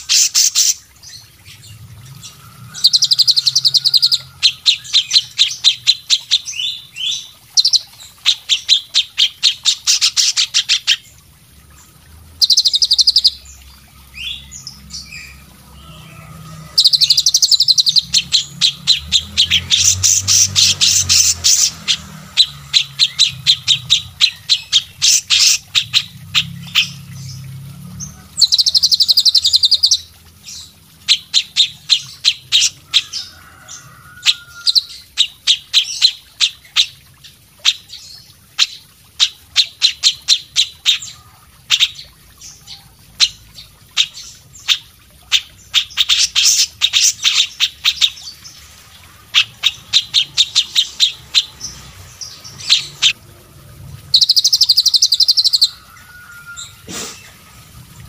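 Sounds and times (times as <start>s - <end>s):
songbirds chattering: 0.0s - 53.2s, 54.0s - 57.6s
bird chirps: 12.4s - 13.5s, 54.1s - 57.4s.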